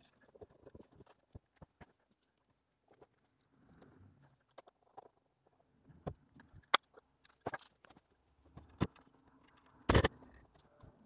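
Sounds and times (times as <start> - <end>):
clicks and knocks of metal parts: 6.1 - 10.9.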